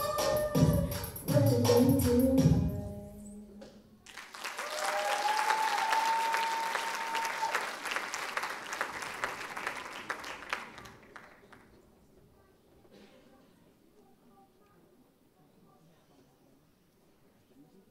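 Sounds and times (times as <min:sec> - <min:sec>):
audience applauding and cheering: 0:04.0 - 0:11.7.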